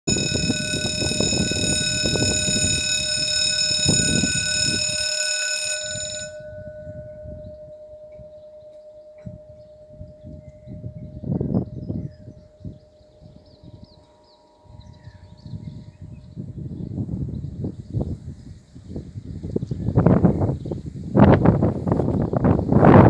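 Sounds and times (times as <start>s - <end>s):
level crossing bell ringing: 0.0s - 9.6s.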